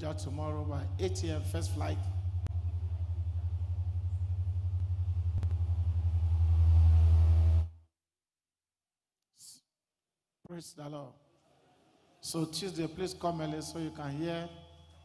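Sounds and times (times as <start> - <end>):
low droning hum with flutter: 0.0 - 7.8.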